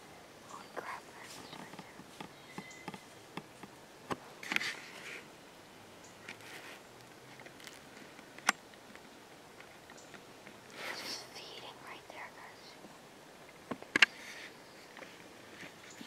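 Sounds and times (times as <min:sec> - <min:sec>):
dry leaves and twigs crackling: 0:06.3 - 0:10.2.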